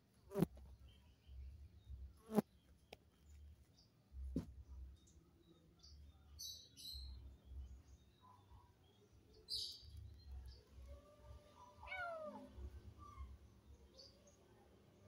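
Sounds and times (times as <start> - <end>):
faint bird chirps: 4.9 - 15.0.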